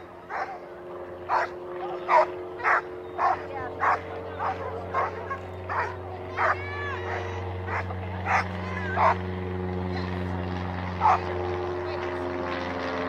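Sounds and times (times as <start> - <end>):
steady low hum: 0.0 - 13.0
dog barking: 0.3 - 0.6, 1.3 - 1.5, 2.1 - 9.2, 11.0 - 11.3.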